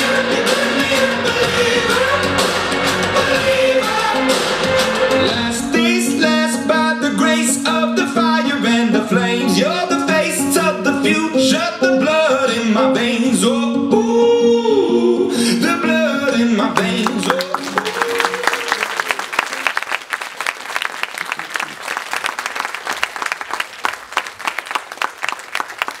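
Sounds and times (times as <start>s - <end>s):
person singing a song: 0.0s - 18.9s
audience applauding: 16.8s - 26.0s.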